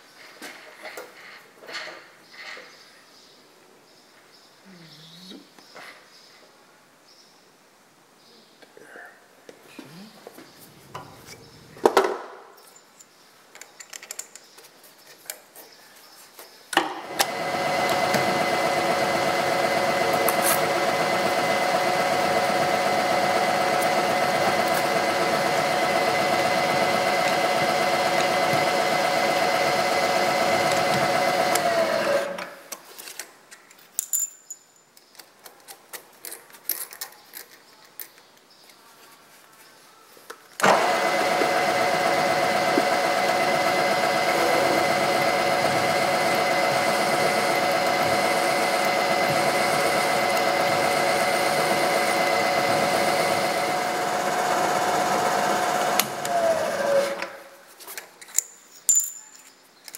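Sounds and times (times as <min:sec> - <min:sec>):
milling machine spindle whine: 0:17.1 - 0:32.4, 0:40.6 - 0:57.2
drill cutting into steel: 0:17.2 - 0:32.4, 0:40.6 - 0:57.2.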